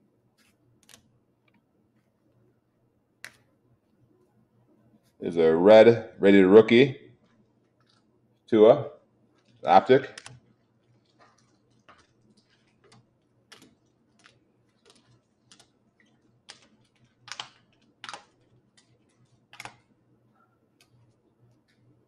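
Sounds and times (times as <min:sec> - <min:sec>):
small clicks and taps: 0:09.3 - 0:19.9, 0:20.8 - 0:21.9.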